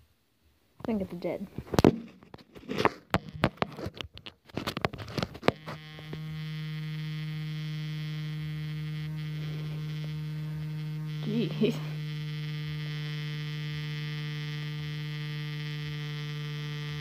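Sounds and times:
low electrical hum: 0:00.0 - 0:17.0
sharp clicks and knocks: 0:01.6 - 0:06.2.

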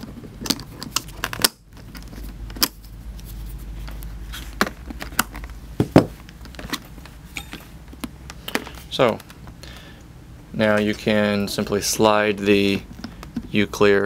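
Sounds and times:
low handling noise: 0:01.8 - 0:09.6.

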